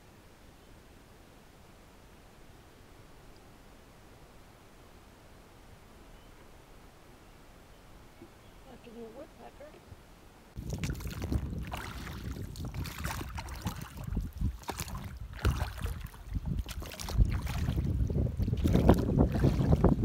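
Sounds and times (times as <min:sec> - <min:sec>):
wind rumbling on microphone: 0:08.6 - 0:20.0
knocks and water splashes: 0:10.6 - 0:20.0.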